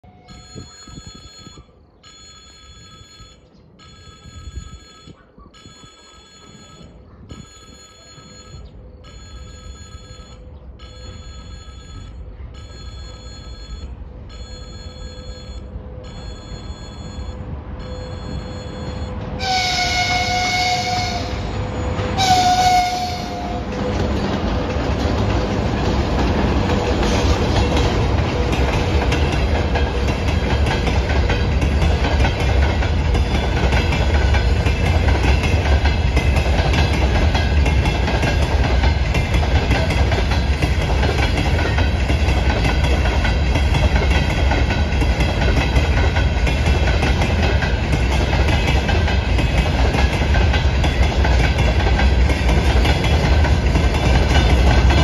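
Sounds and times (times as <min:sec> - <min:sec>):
freight train rumble: 0:00.0 - 0:55.0
level-crossing warning bell: 0:00.0 - 0:55.0
locomotive horn blasts: 0:18.1 - 0:23.7.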